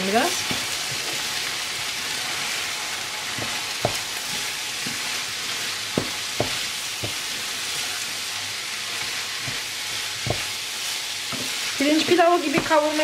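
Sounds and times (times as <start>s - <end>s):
food sizzling in a frying pan: 0.0s - 13.0s
wooden spoon knocking pan: 3.3s - 5.0s, 5.9s - 7.3s, 11.3s - 13.0s.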